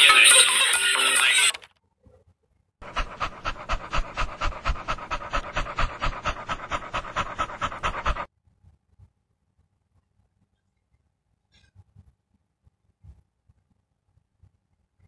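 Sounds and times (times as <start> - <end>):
animal panting rapidly: 2.8 - 8.3.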